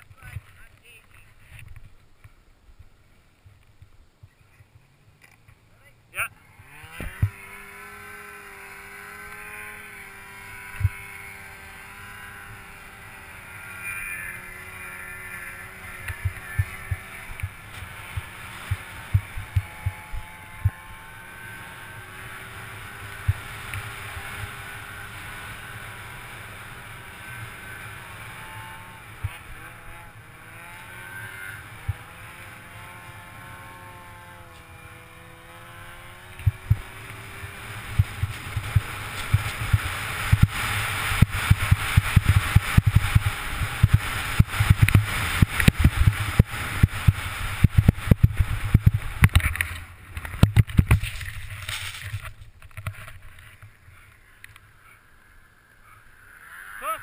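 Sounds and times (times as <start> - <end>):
snowmobile engine running: 4.6 - 57.0
sharp low thumps: 16.1 - 20.9, 36.4 - 37.0, 37.8 - 49.5.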